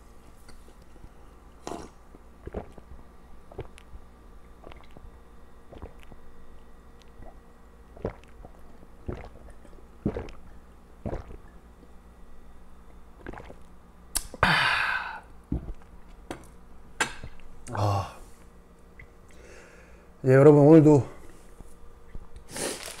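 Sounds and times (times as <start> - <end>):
person gulping water: 1.6 - 12.0, 12.9 - 16.2.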